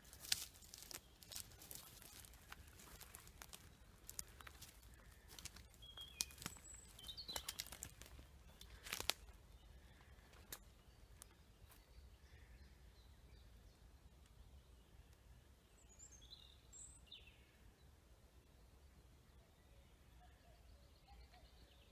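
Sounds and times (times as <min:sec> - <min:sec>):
twigs snapping: 0:00.0 - 0:09.4
footsteps on dry forest floor: 0:00.0 - 0:11.9
faint bird chirps: 0:19.2 - 0:21.9.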